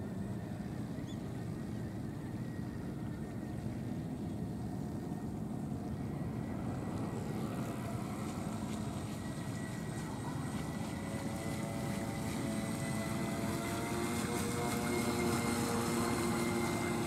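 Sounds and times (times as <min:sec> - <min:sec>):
electric motor whining: 0:07.0 - 0:17.0.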